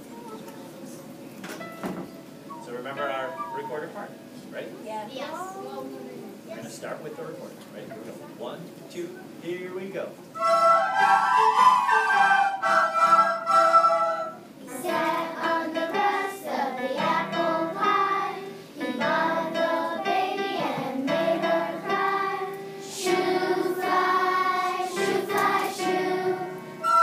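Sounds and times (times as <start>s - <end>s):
electric keyboard: 1.6s - 4.5s, 10.4s - 27.0s
children's choir singing: 10.4s - 27.0s.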